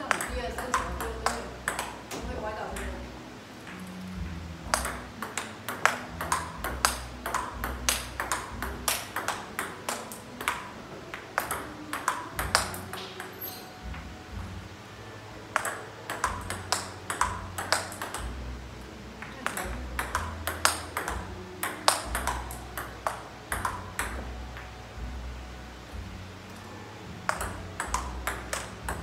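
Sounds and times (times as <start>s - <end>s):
table tennis ball clicking: 0.0s - 2.2s, 2.8s - 3.0s, 4.6s - 13.5s, 15.5s - 18.4s, 19.2s - 24.7s, 27.3s - 29.0s.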